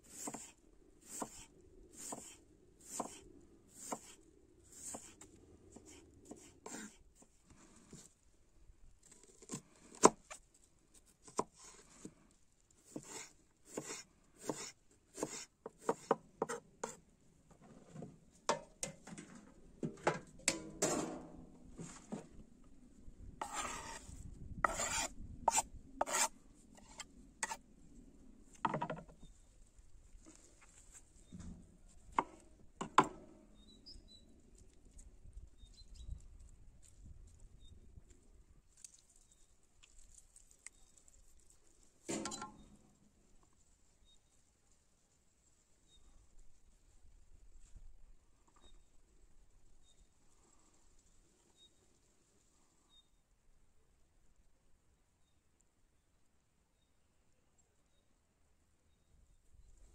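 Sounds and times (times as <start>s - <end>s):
knife strokes on wooden board: 0.0s - 3.2s, 3.8s - 7.0s, 12.8s - 17.0s, 23.4s - 27.6s.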